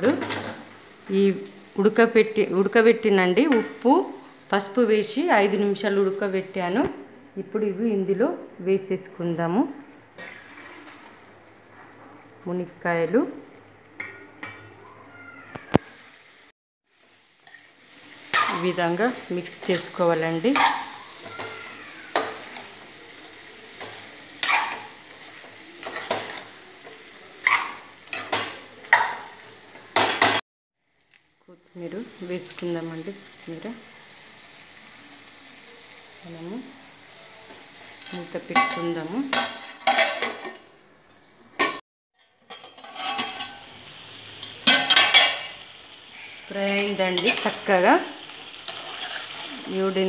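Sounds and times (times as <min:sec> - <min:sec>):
low sizzle from pan: 0:00.0 - 0:07.3, 0:10.0 - 0:12.4, 0:13.4 - 0:50.0
metal spoon scraping a pan: 0:10.2 - 0:11.2, 0:17.4 - 0:21.5, 0:23.7 - 0:30.4, 0:37.9 - 0:40.6, 0:41.6 - 0:43.8, 0:44.4 - 0:49.9
metal pot lid clanking: 0:41.6 - 0:43.7, 0:44.4 - 0:45.5.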